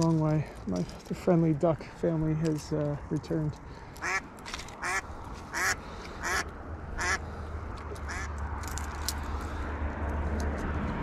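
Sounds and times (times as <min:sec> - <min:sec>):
duck quacking: 0:04.0 - 0:04.2, 0:04.8 - 0:07.2, 0:08.1 - 0:08.3.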